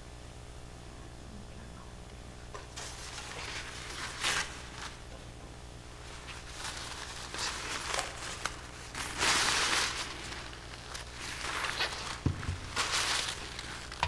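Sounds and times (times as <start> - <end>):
paper towel crinkling: 2.7 - 5.2, 5.9 - 14.0.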